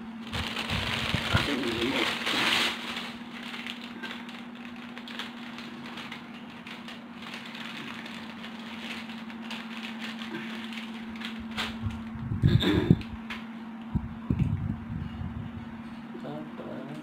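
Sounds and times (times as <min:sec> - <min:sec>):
electric fan humming: 0:00.0 - 0:17.0
plastic wrapper crinkling: 0:00.2 - 0:12.1.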